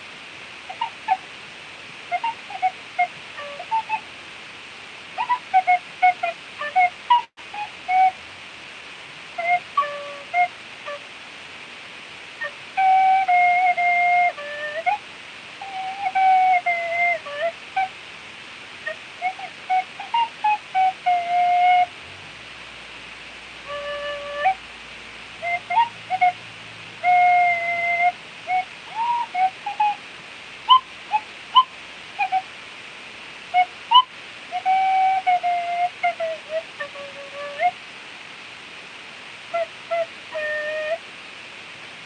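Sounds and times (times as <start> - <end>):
steady hiss: 0.0 - 42.0
tin whistle playing: 0.7 - 1.2, 2.1 - 4.0, 5.2 - 8.2, 9.4 - 11.1, 12.4 - 15.0, 15.6 - 17.9, 18.8 - 21.9, 23.6 - 24.6, 25.4 - 30.0, 30.7 - 32.5, 33.5 - 37.8, 39.5 - 41.0.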